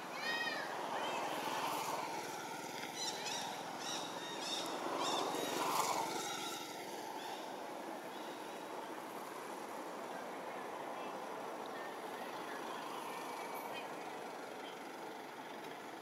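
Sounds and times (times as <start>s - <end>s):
monkey chirping calls: 3.0s - 7.4s.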